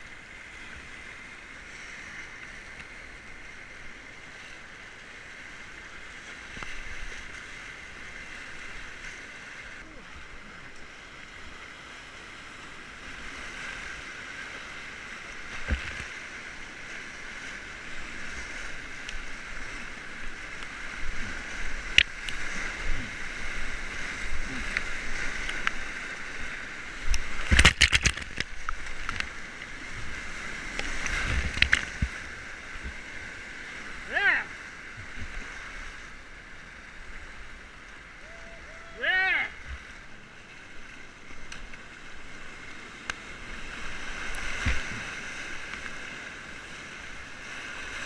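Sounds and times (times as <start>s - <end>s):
paddle strokes: 0.0s - 48.0s
waves splashing over bow: 0.0s - 48.0s
whitewater rapids rushing: 13.2s - 48.0s.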